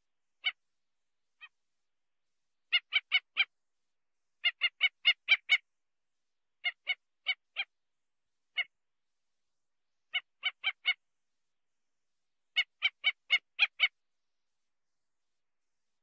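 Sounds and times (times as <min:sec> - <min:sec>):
bird calling with sharp notes: 0:00.4 - 0:00.6, 0:02.7 - 0:03.6, 0:04.4 - 0:05.7, 0:10.1 - 0:11.0, 0:12.5 - 0:14.0.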